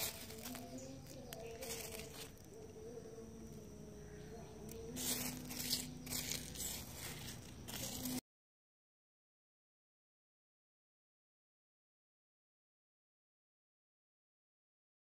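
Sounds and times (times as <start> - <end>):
pebbles scraping and crunching: 0.0 - 2.5, 4.7 - 8.2
faint steady hum: 0.0 - 8.2.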